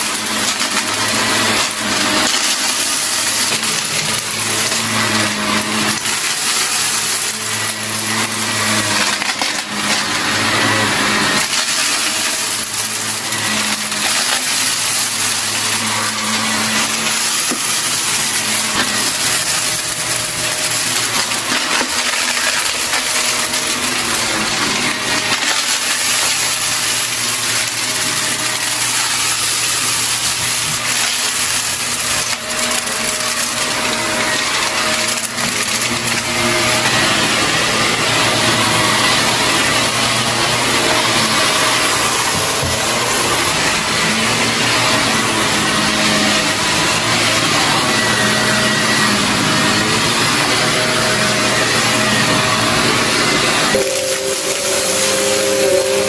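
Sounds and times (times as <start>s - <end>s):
vacuum cleaner running over carpet: 0.0s - 56.0s
debris clicking into vacuum: 11.3s - 37.0s.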